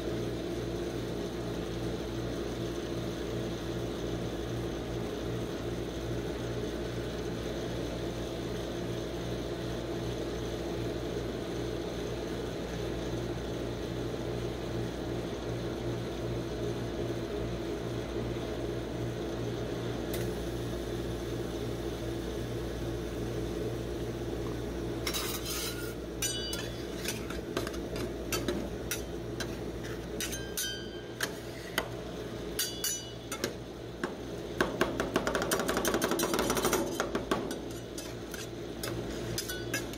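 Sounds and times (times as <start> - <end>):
cold plate machine hum: 0.0 - 39.9
metal spatulas scraping on plate: 25.0 - 31.9, 32.6 - 33.6, 35.9 - 39.9.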